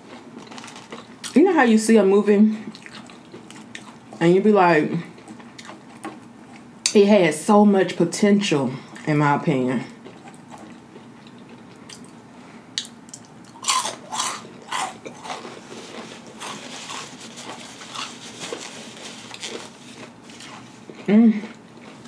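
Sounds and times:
chewing crunchy food: 0.0s - 1.4s, 2.6s - 4.3s, 5.0s - 7.0s, 9.8s - 22.0s.

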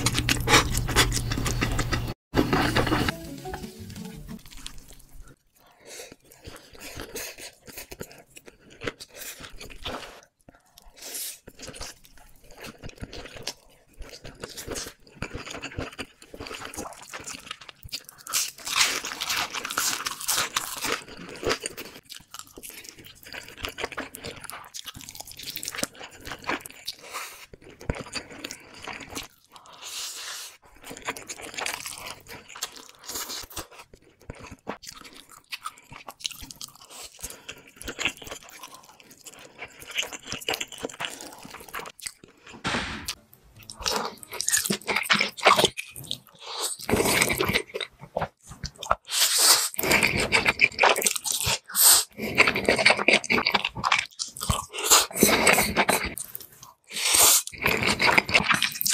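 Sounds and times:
chewing with wet mouth sounds: 4.5s - 42.6s, 43.6s - 58.9s
noodles slurped: 43.7s - 58.9s.

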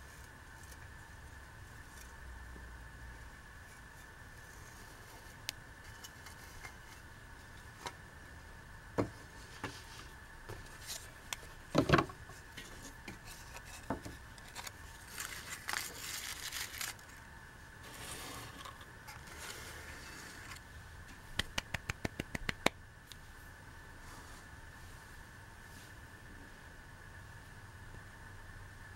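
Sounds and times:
scraping and rustling of box: 11.8s - 17.2s, 17.8s - 20.6s.

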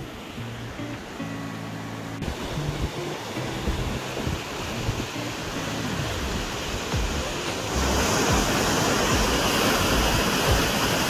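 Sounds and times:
rushing river rapids: 0.0s - 11.0s.

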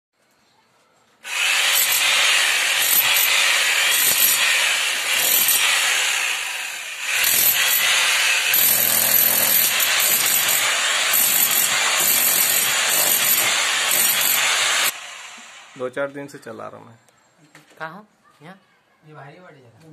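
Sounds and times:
hammer drill cutting into brick: 1.2s - 15.8s.

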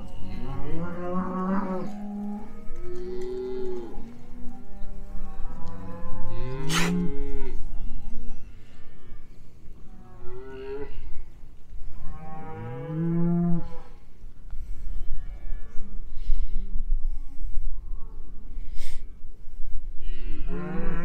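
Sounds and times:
cows mooing: 0.0s - 7.8s, 12.1s - 13.9s.

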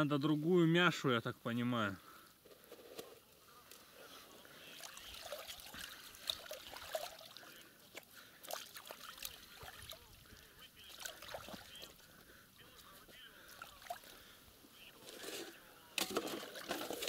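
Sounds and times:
water trickling and sloshing: 4.4s - 14.4s
small splashes and clicks: 4.6s - 12.9s.

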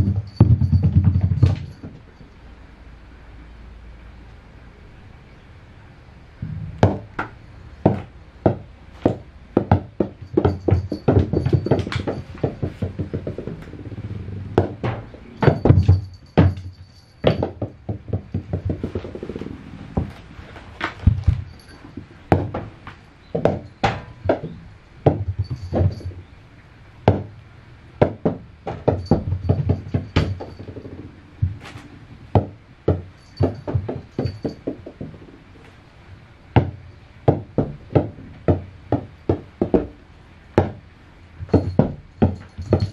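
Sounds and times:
rubber ball bouncing on wood: 0.0s - 2.0s, 6.8s - 19.4s, 22.3s - 22.7s, 23.3s - 26.2s, 27.0s - 27.4s, 28.0s - 35.4s, 36.6s - 40.0s, 40.6s - 40.8s, 41.4s - 42.9s.

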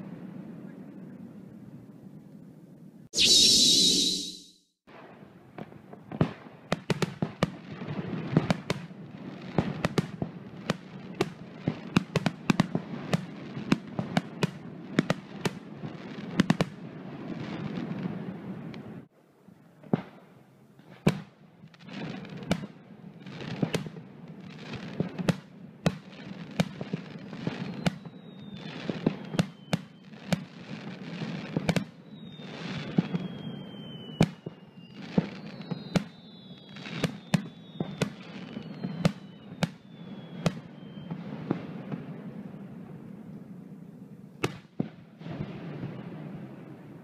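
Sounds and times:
fireworks whistling: 3.2s - 4.8s, 27.1s - 30.2s, 31.8s - 41.3s.

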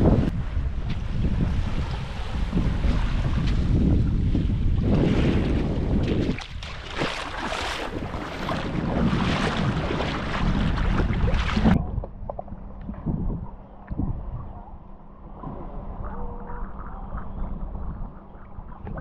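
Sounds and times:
wind on microphone: 0.0s - 19.0s
seawater sloshing and splashing: 0.6s - 12.7s
muffled underwater sound: 8.0s - 19.0s.

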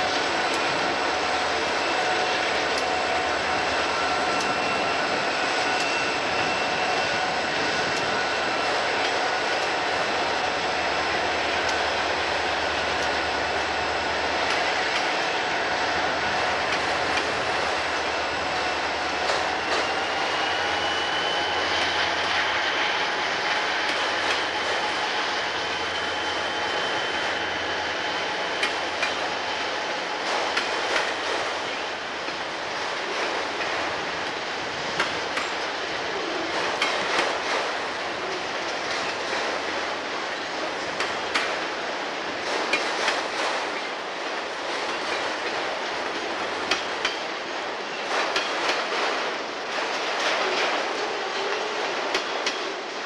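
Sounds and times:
steady high squeal: 0.0s - 32.7s
diesel locomotives running: 0.0s - 53.0s
train wheels clicking over rail joints: 0.0s - 53.0s.

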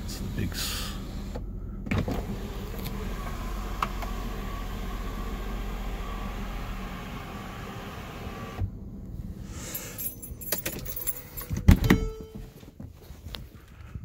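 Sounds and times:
sunroof motor whining: 1.0s - 9.0s.

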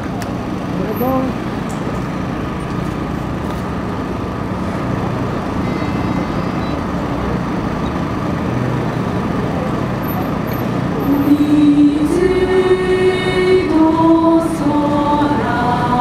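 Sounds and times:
city traffic rumble and hiss: 0.0s - 16.0s
strong held tone: 5.2s - 7.7s, 10.1s - 16.0s.

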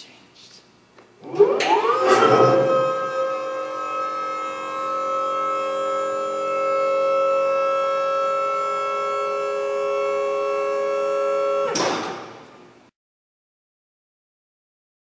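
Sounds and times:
loud electronic hum: 1.2s - 11.9s.

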